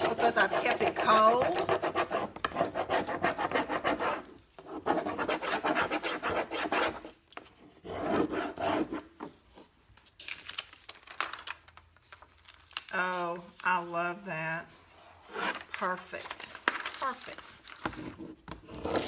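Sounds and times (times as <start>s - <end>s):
stick scratching back and forth: 0.0s - 7.2s.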